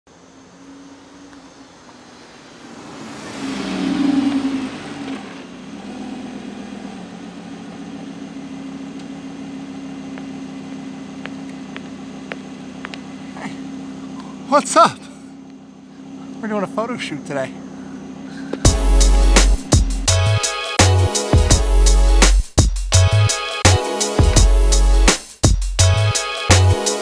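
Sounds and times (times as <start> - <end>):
sports car engine idling: 5.4 - 20.4.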